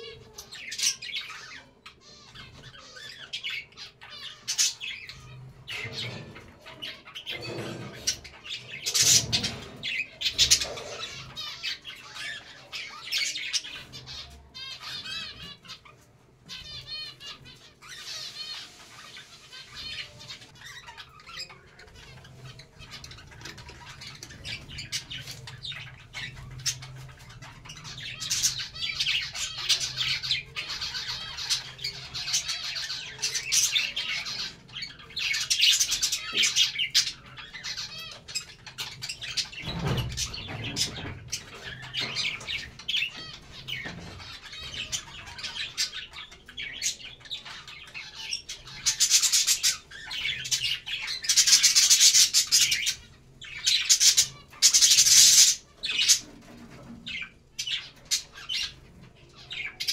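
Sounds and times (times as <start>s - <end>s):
budgerigars chattering: 0.0s - 59.9s.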